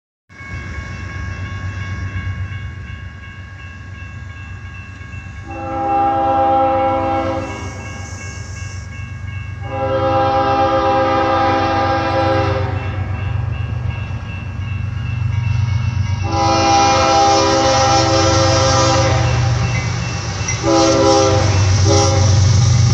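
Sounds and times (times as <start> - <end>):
crossing signal ringing: 0.3 - 22.9
locomotive rumble: 0.5 - 22.9
locomotive air horn blasts: 5.4 - 7.7, 9.6 - 13.0, 16.2 - 19.6, 20.6 - 22.6.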